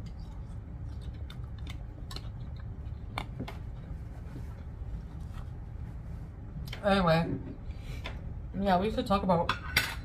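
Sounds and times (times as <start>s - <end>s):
person chewing noodles: 0.0s - 5.6s
low steady hum: 0.0s - 10.0s.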